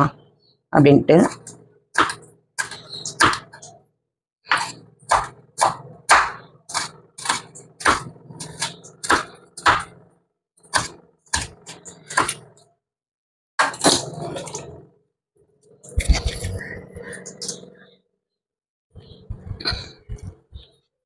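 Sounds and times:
low hum: 15.8s - 17.9s.

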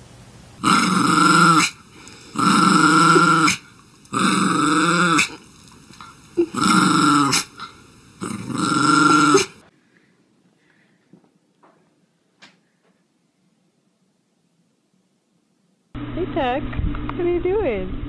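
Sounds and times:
small dog growling: 0.6s - 5.4s, 6.0s - 9.7s.

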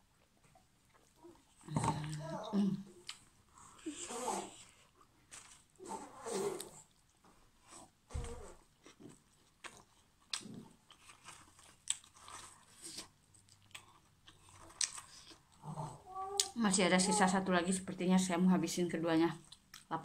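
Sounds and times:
person chewing food: 0.0s - 2.3s, 2.9s - 4.0s, 8.6s - 16.6s, 19.4s - 19.9s.

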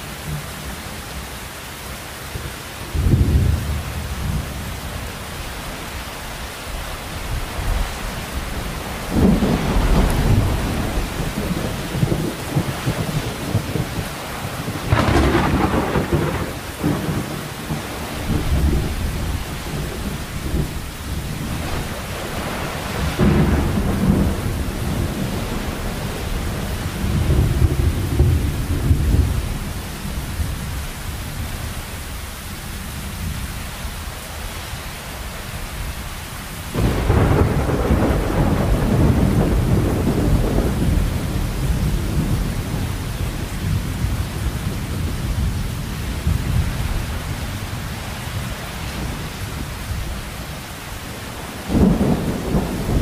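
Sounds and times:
heavy rain: 0.0s - 53.0s
thunder rolling: 7.3s - 29.8s, 36.7s - 45.5s, 51.6s - 53.0s.

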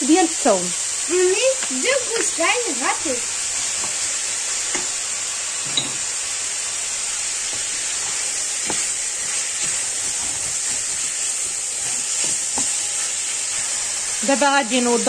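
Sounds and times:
food sizzling in oil: 0.0s - 15.0s
wooden spoon scraping a pan: 7.4s - 14.1s.

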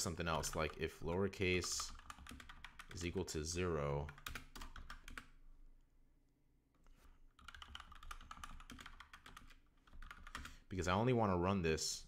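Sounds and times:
typing on computer keyboard: 1.6s - 3.0s, 4.0s - 5.3s, 7.4s - 10.6s.

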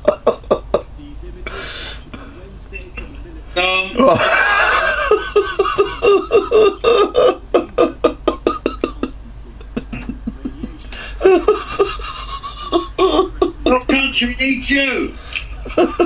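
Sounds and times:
hearty laughter: 4.0s - 13.9s, 15.4s - 16.0s.

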